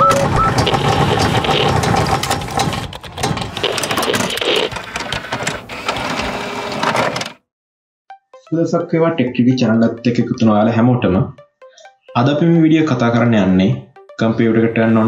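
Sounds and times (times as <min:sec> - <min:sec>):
fast mechanical clicks: 0:00.0 - 0:07.4.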